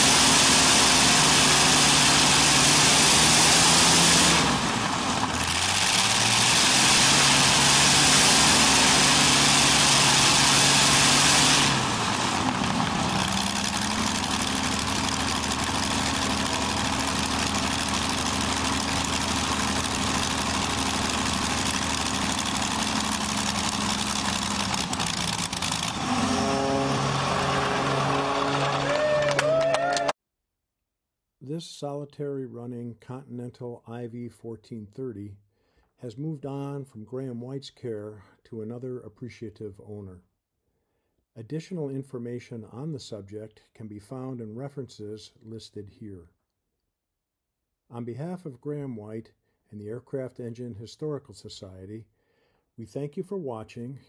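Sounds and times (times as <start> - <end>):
aircraft engine running: 0.0 - 29.4.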